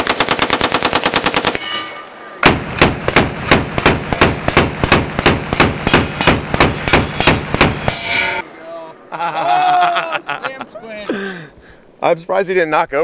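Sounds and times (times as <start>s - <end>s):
rifle firing automatic bursts: 0.0s - 1.6s.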